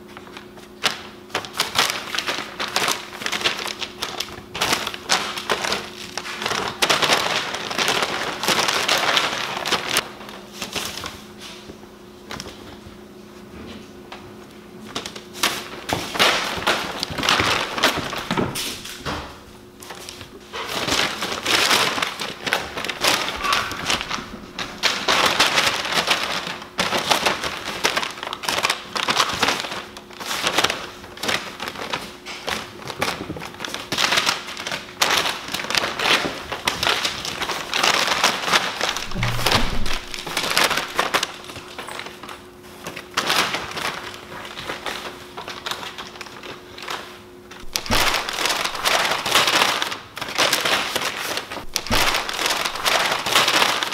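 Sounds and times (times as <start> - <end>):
paper crinkling and rustling: 0.0 - 53.9
soft thumps: 39.0 - 41.0.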